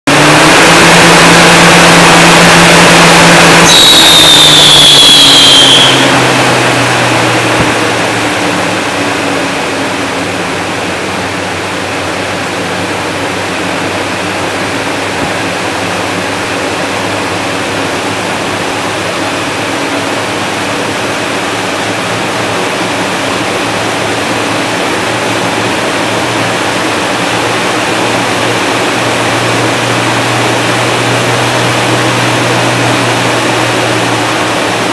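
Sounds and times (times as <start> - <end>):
lathe spindle running: 0.1 - 34.9
high squeal falling in pitch: 0.3 - 9.0.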